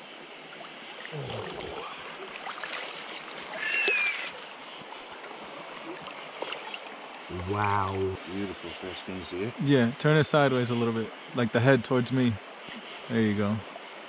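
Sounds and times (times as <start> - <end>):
water splashing and sloshing: 0.0 - 8.7
river rushing: 0.8 - 7.2.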